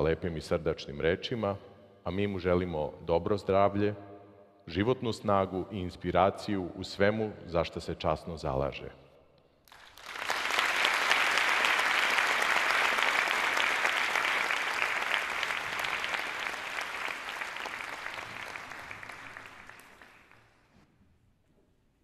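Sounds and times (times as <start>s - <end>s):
audience applauding: 9.7s - 20.7s.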